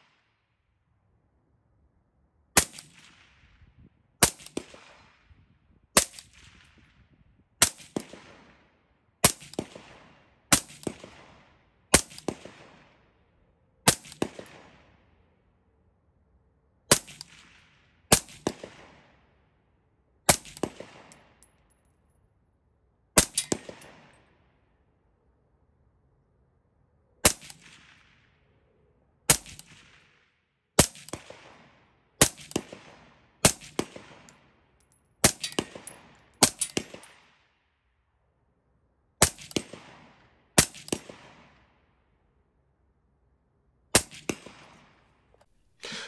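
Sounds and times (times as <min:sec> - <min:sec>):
suppressed rifle shots: 0:23.2 - 0:24.2.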